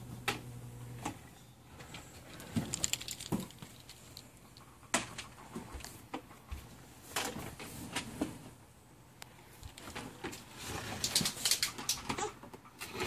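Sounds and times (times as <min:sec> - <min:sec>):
toys clattering: 0:01.8 - 0:05.3
plastic toys clicking and knocking: 0:01.9 - 0:05.4, 0:09.6 - 0:13.0.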